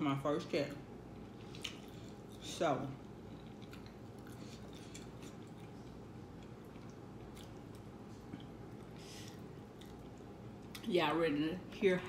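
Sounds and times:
chewing noodles: 0:01.2 - 0:10.8.

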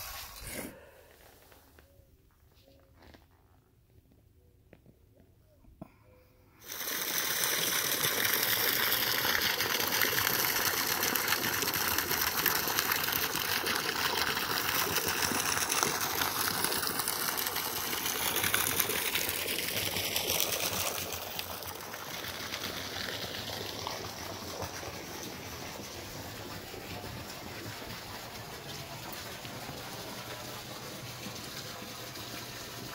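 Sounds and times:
high pressure water jet gushing: 0:06.6 - 0:32.9.

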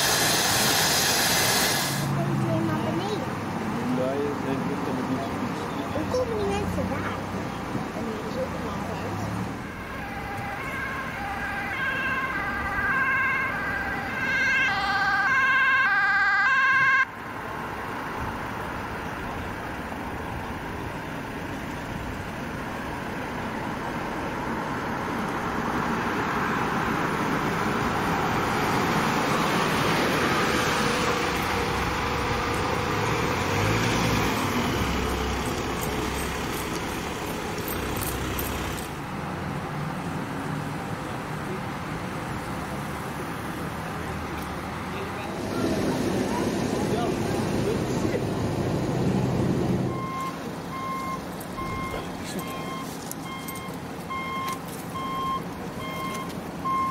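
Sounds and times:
van engine and tyres passing: 0:00.0 - 0:56.9
two-tone ambulance siren: 0:09.6 - 0:17.2, 0:49.8 - 0:56.9.

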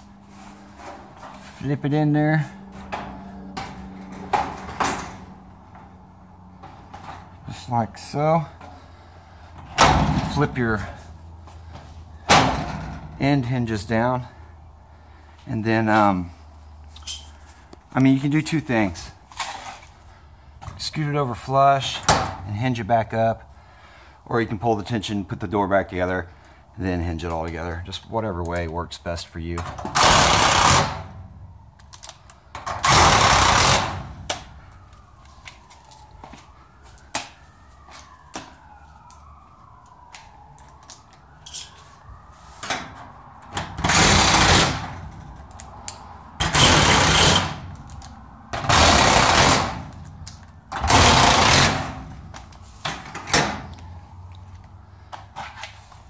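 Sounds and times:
power driver driving screws: 0:29.8 - 0:31.0, 0:32.8 - 0:33.9, 0:43.8 - 0:44.9, 0:46.4 - 0:47.6, 0:48.6 - 0:49.8, 0:50.8 - 0:51.9.

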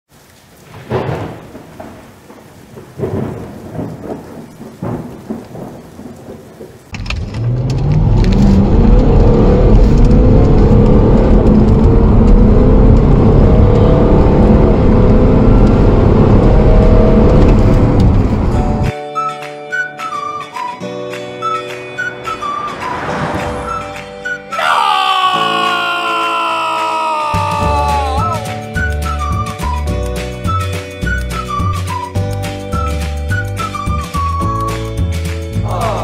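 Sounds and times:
diesel engine accelerating: 0:07.0 - 0:18.9.

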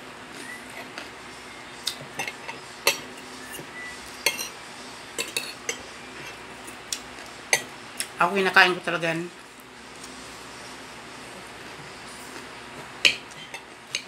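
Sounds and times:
cutlery clinking on a plate: 0:02.1 - 0:03.2, 0:04.2 - 0:04.6, 0:05.2 - 0:06.8, 0:13.0 - 0:14.0.

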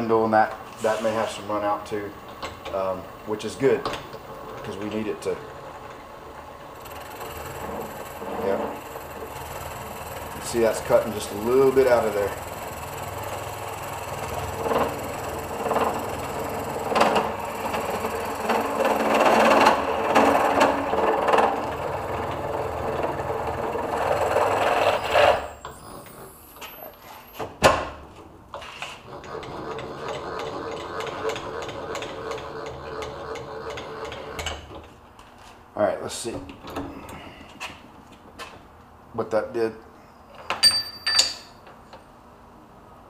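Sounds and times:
grinding cut with knocks: 0:00.4 - 0:26.8, 0:28.6 - 0:35.5
milling machine motor hum: 0:01.5 - 0:26.3, 0:29.1 - 0:34.9.

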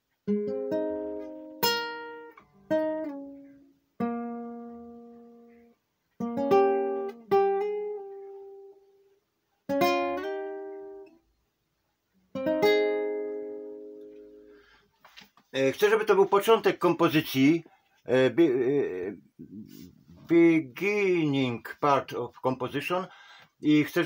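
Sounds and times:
fingerpicked acoustic guitar: 0:00.0 - 0:11.3, 0:12.2 - 0:14.8.

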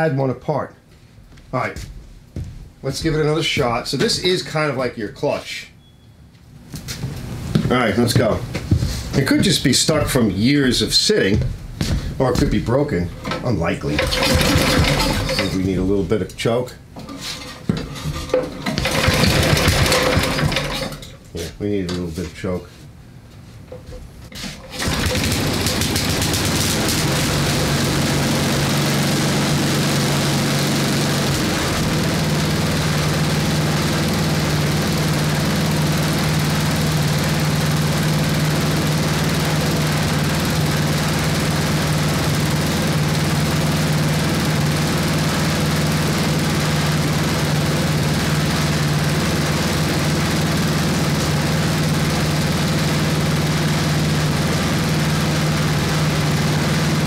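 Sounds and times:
snowblower engine running: 0:12.3 - 0:16.0, 0:17.0 - 0:21.5, 0:23.8 - 0:57.0.

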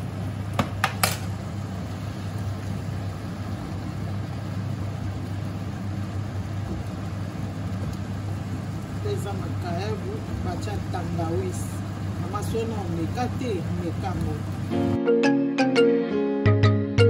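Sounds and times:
kitchen machinery hum: 0:00.0 - 0:15.0.

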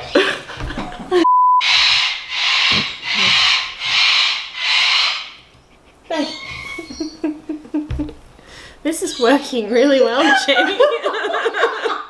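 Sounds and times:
censor bleep: 0:01.2 - 0:01.6
parrot screeching: 0:01.6 - 0:05.5, 0:06.1 - 0:07.2.

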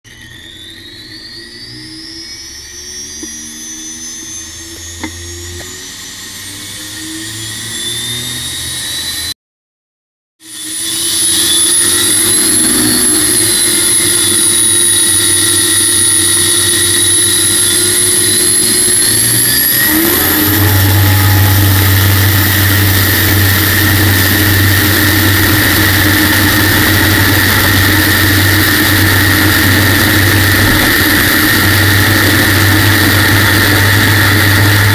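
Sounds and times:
turbine engine whine: 0:00.0 - 0:09.4, 0:10.4 - 0:34.9
deep engine rumble: 0:11.4 - 0:34.9.

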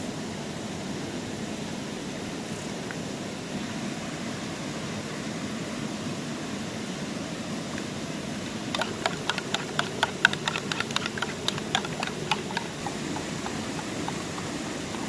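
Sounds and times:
metal spoon clinking against bowl: 0:08.8 - 0:15.0.

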